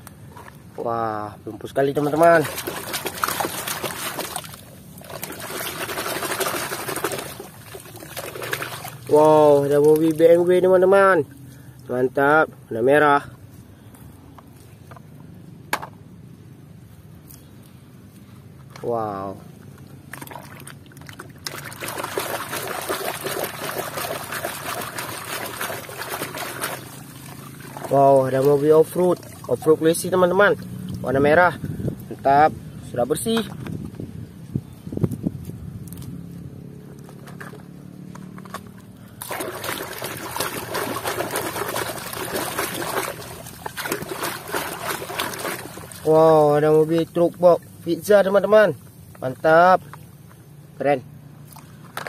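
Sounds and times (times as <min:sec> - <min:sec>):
muddy water splashing: 0:01.5 - 0:12.0, 0:18.7 - 0:32.3, 0:38.4 - 0:50.3.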